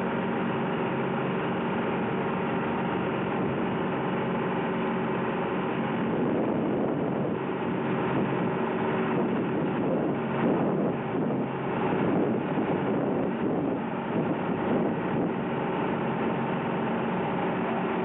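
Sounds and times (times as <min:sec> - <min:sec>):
boat engine running: 0:00.0 - 0:18.0.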